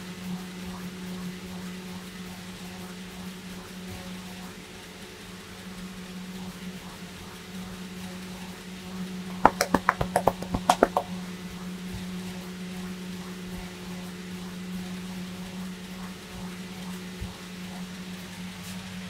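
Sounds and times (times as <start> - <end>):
low electrical hum: 0.0 - 19.0
hands slapping on head: 9.5 - 11.1.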